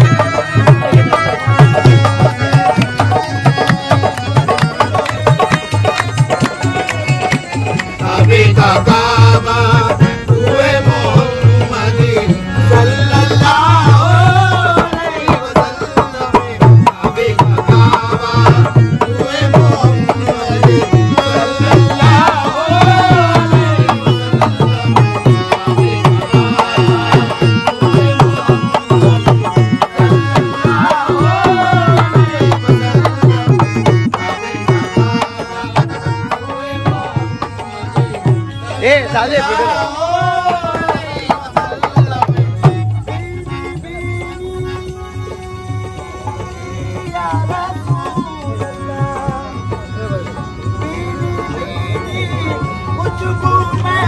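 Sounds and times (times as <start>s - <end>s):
hand drums rhythm: 0.0s - 54.0s.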